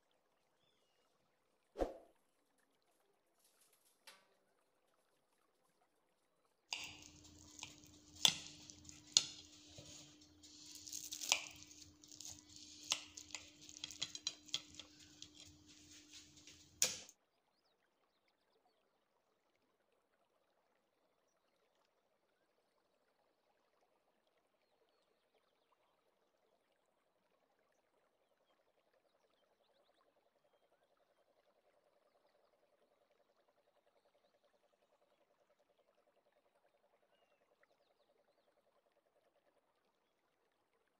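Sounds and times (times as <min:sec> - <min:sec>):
cake server scraping glass plate: 0:06.7 - 0:17.1.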